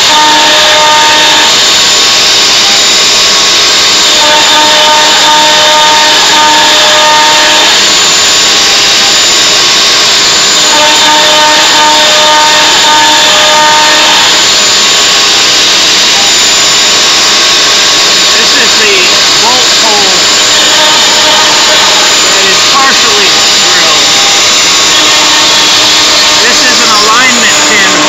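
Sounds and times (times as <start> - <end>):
router spindle cutting wood: 17.9 - 28.0.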